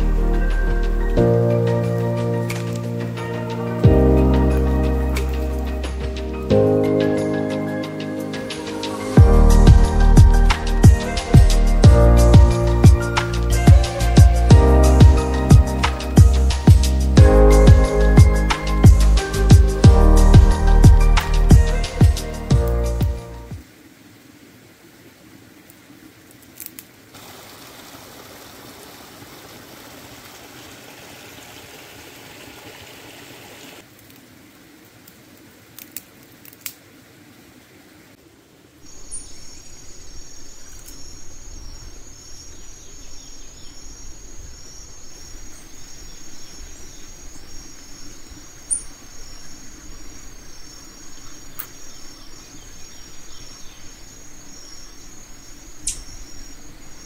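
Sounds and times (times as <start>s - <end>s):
insects chirring: 0.0s - 23.6s, 38.7s - 57.0s
stream running over rocks: 0.0s - 57.0s
low rumble: 9.2s - 23.3s.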